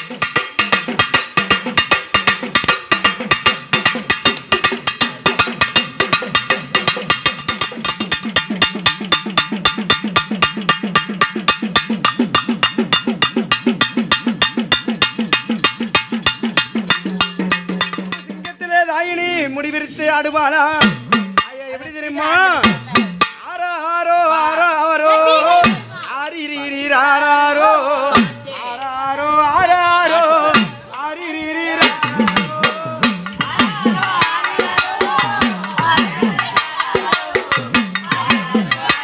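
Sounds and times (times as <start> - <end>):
drums beaten in fast rhythm: 0.0 - 39.0
ringing tone: 6.8 - 19.4.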